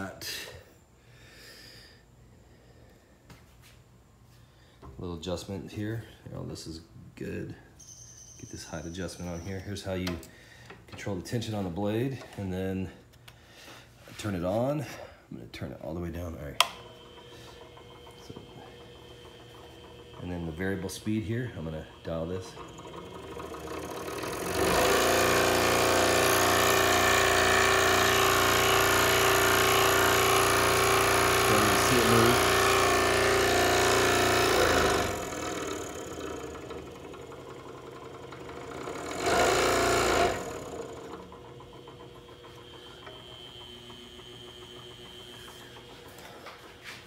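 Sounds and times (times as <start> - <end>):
scroll saw running: 16.3 - 47.0.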